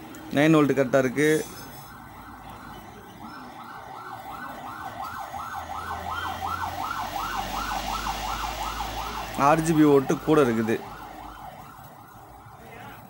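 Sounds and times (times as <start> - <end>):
emergency siren sweeping: 0.0 - 13.0.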